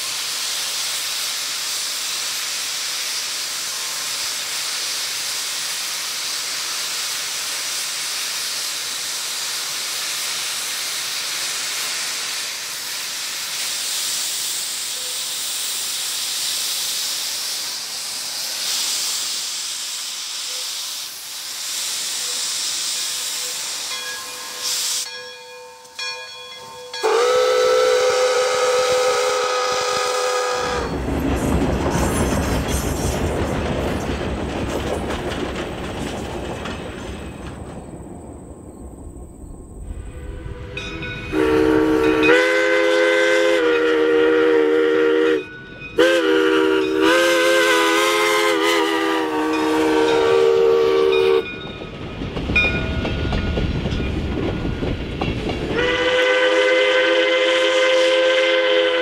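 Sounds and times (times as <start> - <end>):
steam hissing from locomotive: 0.0 - 25.4, 26.6 - 36.3, 39.9 - 59.0
steam whistle blowing: 26.9 - 30.9, 40.2 - 51.5, 55.7 - 59.0.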